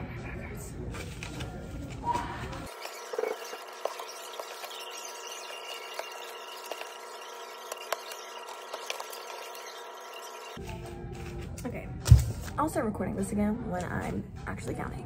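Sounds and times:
banknotes rustling and crackling: 0:00.9 - 0:11.5.

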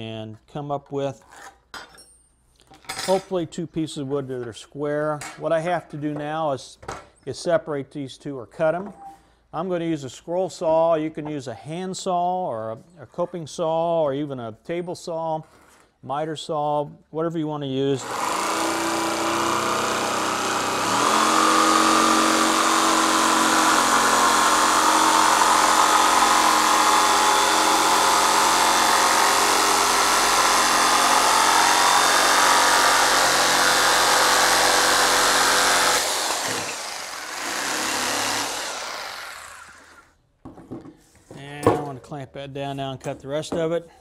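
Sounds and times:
jigsaw cutting wood board: 0:18.0 - 0:40.1.

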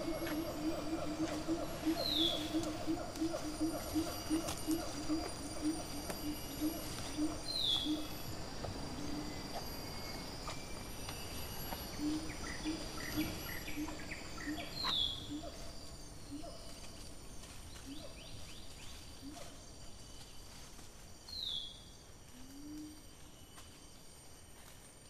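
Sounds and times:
insects droning: 0:00.0 - 0:25.0
falling whistled bird calls: 0:01.8 - 0:02.6.

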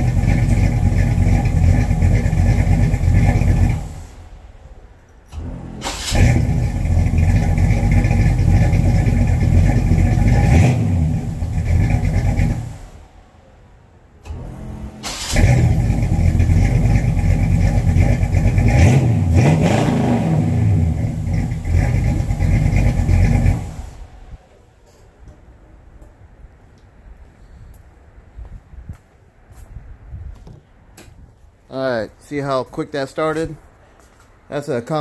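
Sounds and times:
car engine revving: 0:00.0 - 0:04.7, 0:05.3 - 0:13.2, 0:14.2 - 0:24.4
car engine cranking: 0:00.0 - 0:13.2, 0:14.2 - 0:24.4.

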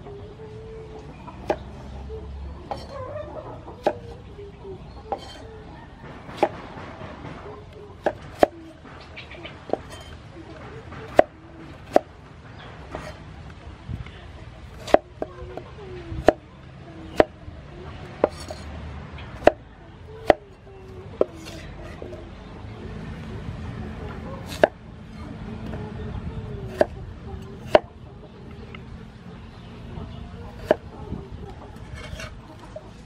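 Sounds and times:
cleaver chopping on wooden block: 0:01.4 - 0:01.7, 0:03.8 - 0:04.2, 0:06.1 - 0:06.7, 0:08.0 - 0:08.7, 0:11.0 - 0:12.1, 0:14.7 - 0:15.3, 0:18.2 - 0:18.6, 0:19.3 - 0:19.6, 0:20.2 - 0:20.4, 0:24.4 - 0:24.8, 0:26.7 - 0:27.0, 0:27.6 - 0:27.9, 0:30.6 - 0:30.8.

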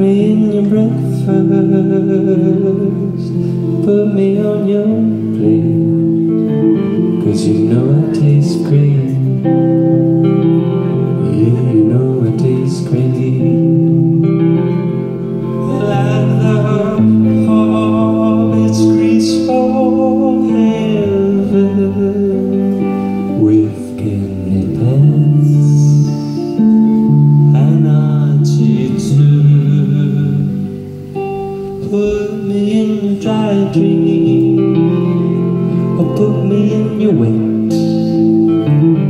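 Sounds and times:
electric guitar: 0:00.0 - 0:39.0
held bass notes: 0:00.0 - 0:39.0
person singing: 0:00.0 - 0:39.0.

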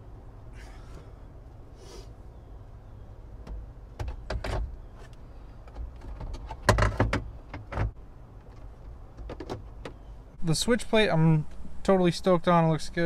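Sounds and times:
steady low hum: 0:00.0 - 0:04.0.

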